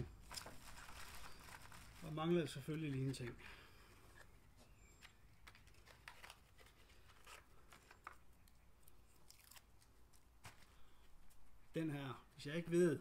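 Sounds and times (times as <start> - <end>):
plastic clicks and rustles: 0.2 - 3.4, 5.0 - 11.4.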